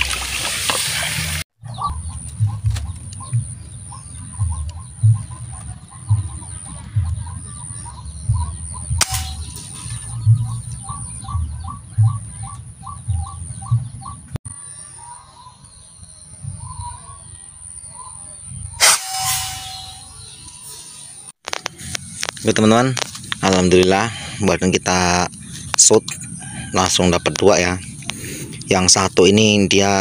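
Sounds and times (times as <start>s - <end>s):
waterhen calling: 0.0s - 14.2s
sharp click: 9.0s - 9.7s
steady high whine: 18.8s - 26.1s.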